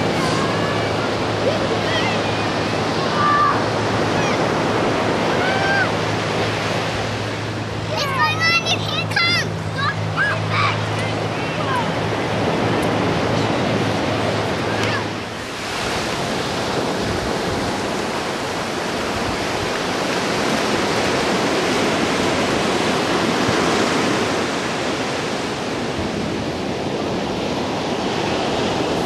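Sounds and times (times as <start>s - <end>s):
ocean surf breaking on sand: 0.0s - 29.0s
wind on microphone: 11.0s - 29.0s.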